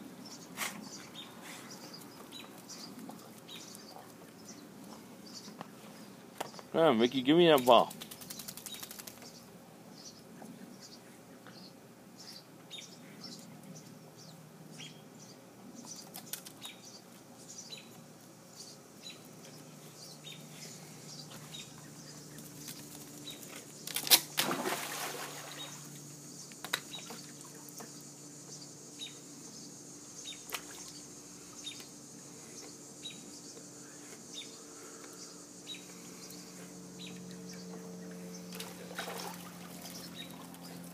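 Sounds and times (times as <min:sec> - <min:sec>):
dog splashing into pool: 0:23.9 - 0:26.0, 0:38.5 - 0:40.7
churning water: 0:24.4 - 0:25.8, 0:38.6 - 0:40.5.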